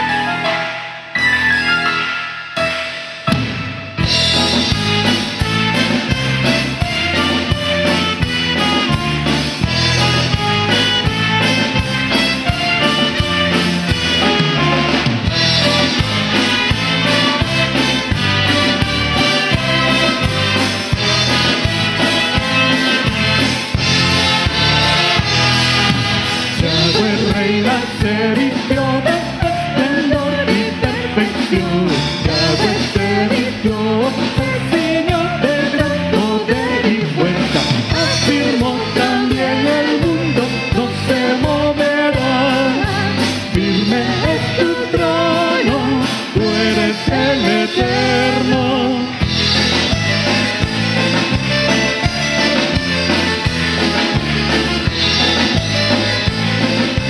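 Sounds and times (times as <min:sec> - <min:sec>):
drums: 0:00.0 - 0:57.0
keyboards: 0:00.0 - 0:57.0
trumpets: 0:01.4 - 0:27.2
man and woman singing: 0:26.5 - 0:49.2.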